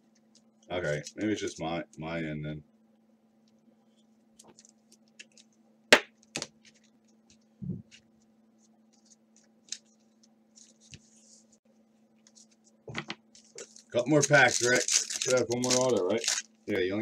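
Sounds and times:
faint steady hum: 0:00.0 - 0:17.0
cards rustling: 0:13.3 - 0:16.9.

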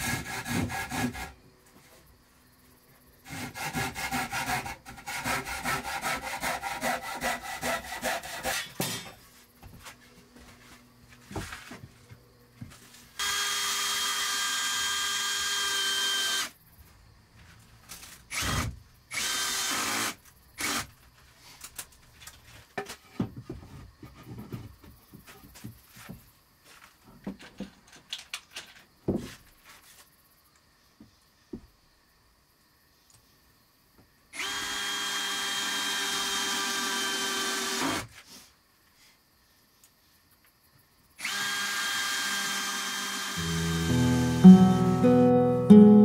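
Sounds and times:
hand saw sawing wood: 0:00.0 - 0:01.4, 0:03.3 - 0:09.1
cordless drill driving screw: 0:13.2 - 0:16.5, 0:18.3 - 0:20.8, 0:34.4 - 0:38.1, 0:41.2 - 0:43.8.

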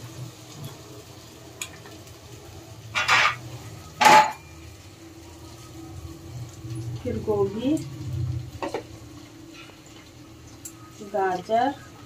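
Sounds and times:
metallic scrapes on pressure cooker: 0:03.0 - 0:03.4.

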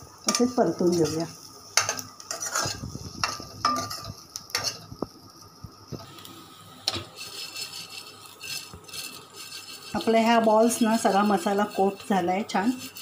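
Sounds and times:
light sizzle: 0:00.0 - 0:13.0
spatula scraping pan: 0:00.3 - 0:04.9, 0:06.8 - 0:13.0
spatula knocking pan: 0:01.8 - 0:04.8.

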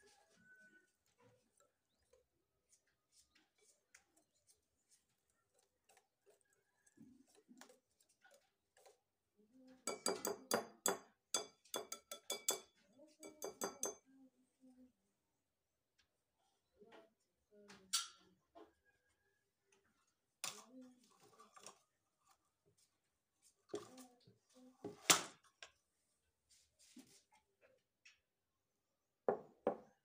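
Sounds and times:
whisk clinking against glass bowl: 0:09.9 - 0:14.0.

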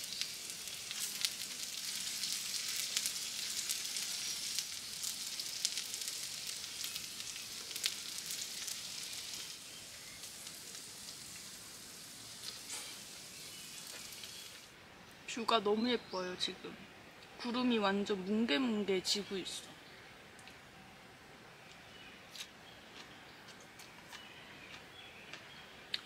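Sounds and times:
meat sizzling and crackling: 0:00.0 - 0:14.7.

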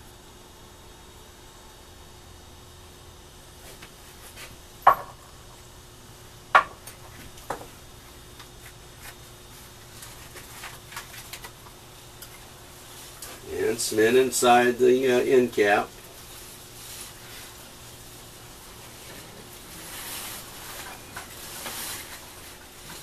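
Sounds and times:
knocks on workbench: 0:04.9 - 0:05.2, 0:06.6 - 0:06.8.

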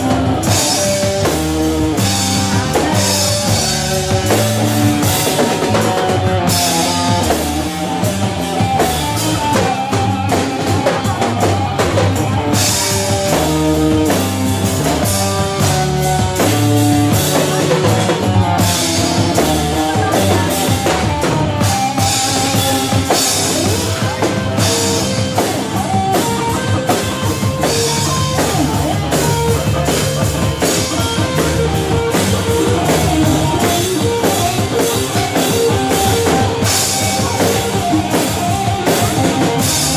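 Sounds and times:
drum kit: 0:00.0 - 0:39.9
electric bass: 0:00.0 - 0:39.9
electric guitar: 0:00.0 - 0:39.9.

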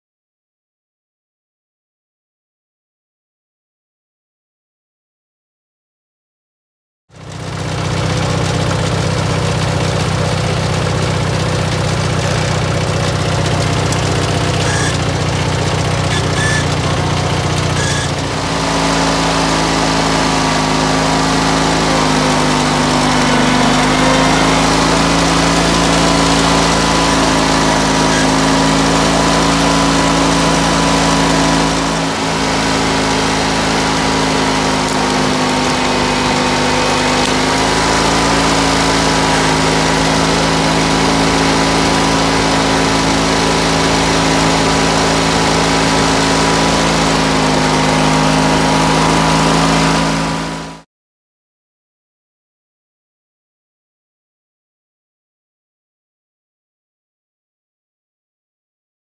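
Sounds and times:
garden tractor engine running: 0:07.2 - 0:50.8.

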